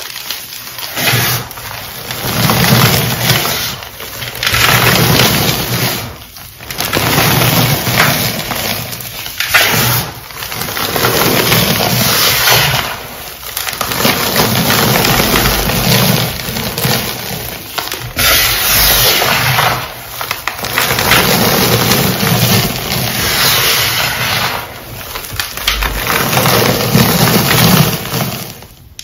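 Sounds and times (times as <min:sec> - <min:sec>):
chalk crunching into powder: 0:18.2 - 0:19.8.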